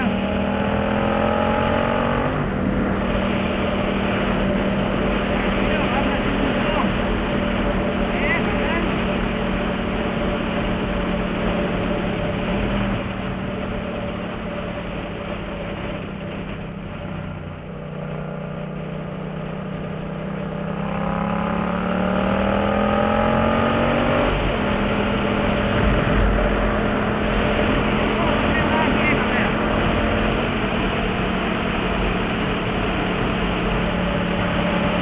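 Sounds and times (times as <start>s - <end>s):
motorcycle engine: 0.0s - 35.0s
wind noise: 23.8s - 35.0s.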